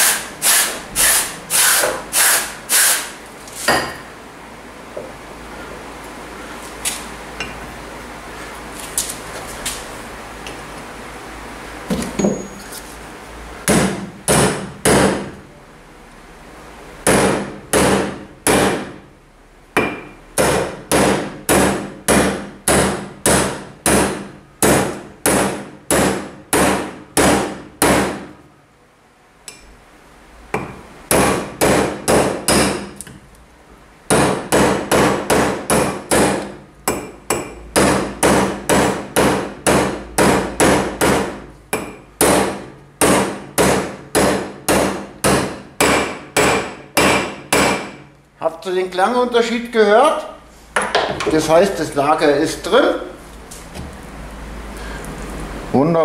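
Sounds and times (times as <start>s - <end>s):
hammer striking metal ringing: 12.2s - 12.6s.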